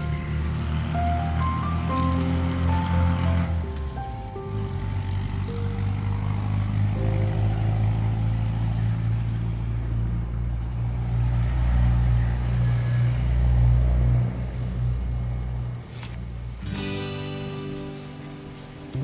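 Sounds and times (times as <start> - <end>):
deep bass drone music: 0.0 - 19.0
held higher notes: 16.6 - 19.0.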